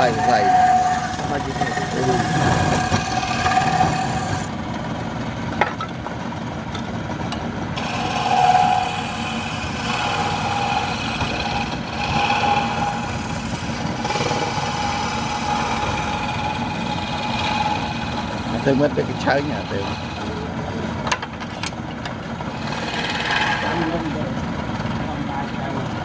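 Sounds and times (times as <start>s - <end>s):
chisel hissing on wood: 0.0s - 4.5s, 7.8s - 20.5s, 22.5s - 24.0s
wood lathe hum: 0.0s - 4.6s, 7.7s - 25.6s.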